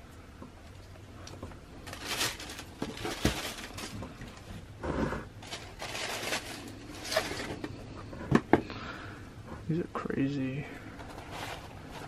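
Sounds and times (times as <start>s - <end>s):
tissue paper crinkling: 1.8s - 4.5s, 5.4s - 7.6s.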